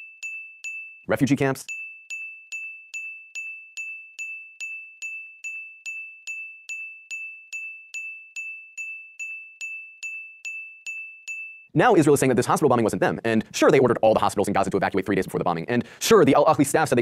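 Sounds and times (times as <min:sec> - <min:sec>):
high-pitched chime dings: 0:00.0 - 0:11.8.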